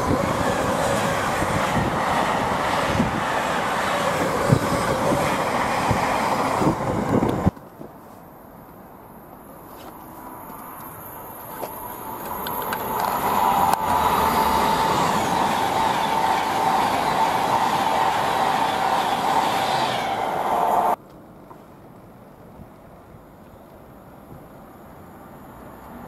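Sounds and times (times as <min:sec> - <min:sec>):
train rumbling past: 0:00.0 - 0:07.6, 0:10.0 - 0:21.0.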